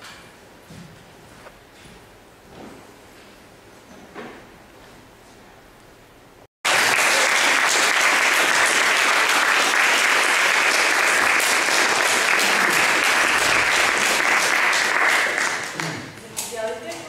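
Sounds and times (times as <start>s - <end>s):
audience applauding: 6.6s - 16.2s.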